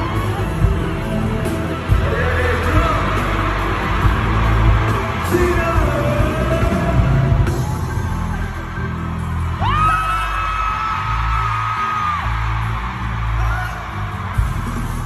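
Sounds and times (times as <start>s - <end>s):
person singing: 0.0s - 8.3s
bass line: 0.0s - 15.0s
live band music: 0.0s - 15.0s.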